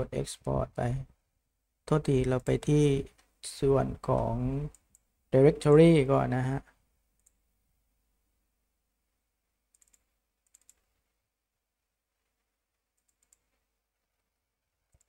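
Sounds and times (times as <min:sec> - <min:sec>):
quiet room hum: 0:00.0 - 0:15.0
computer mouse clicks: 0:04.6 - 0:05.1, 0:07.2 - 0:07.4, 0:09.7 - 0:11.0, 0:12.9 - 0:13.7.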